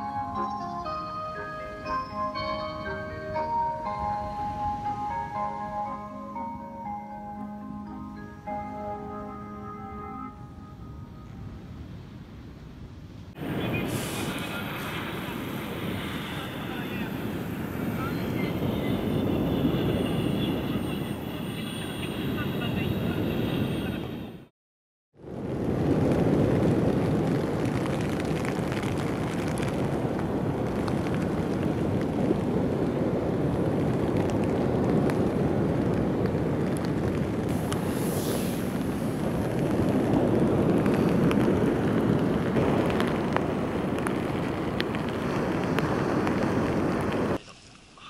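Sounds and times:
wind buffeting microphone: 10.8s - 21.4s, 25.2s - 47.4s.

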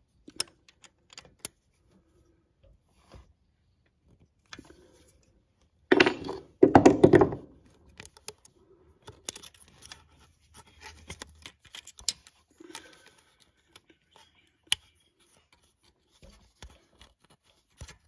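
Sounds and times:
small metal clicks and scrapes: 0.1s - 2.0s, 7.7s - 18.0s
loud handling sounds: 5.9s - 7.5s.

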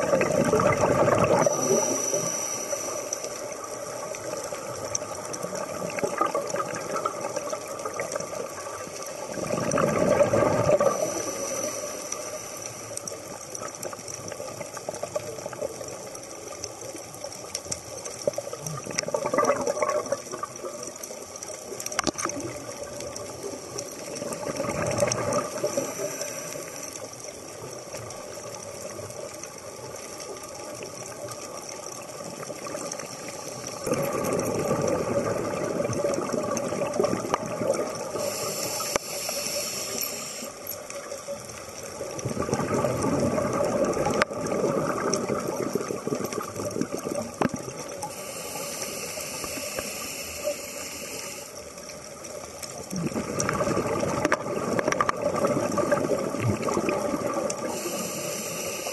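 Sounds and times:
exhaled bubbles gurgling: 0.0s - 58.9s
regulator inhalation hiss: 1.3s - 4.0s, 10.8s - 13.3s, 25.5s - 27.1s, 38.0s - 40.8s, 48.0s - 51.8s, 57.6s - 58.9s.

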